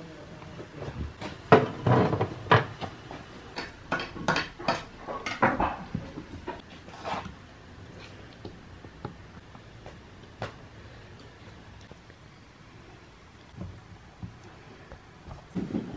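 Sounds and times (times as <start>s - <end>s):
kitchenware knocking and clattering: 1.2s - 6.6s.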